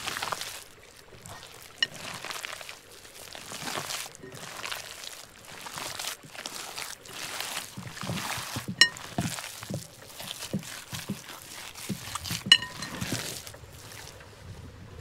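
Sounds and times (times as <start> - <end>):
faint liquid sounds: 0.0 - 15.0
soft cookware knocks: 12.4 - 13.2
cookware ringing clinks: 12.5 - 13.1.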